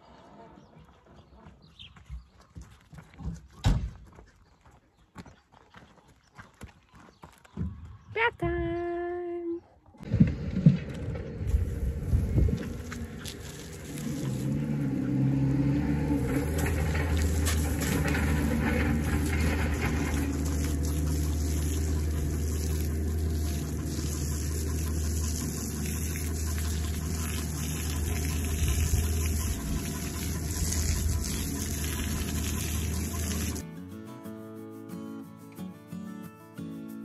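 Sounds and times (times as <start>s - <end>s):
garden hose spraying water: 11.4s - 33.6s
water splashing on horse: 11.5s - 15.4s, 16.1s - 33.6s.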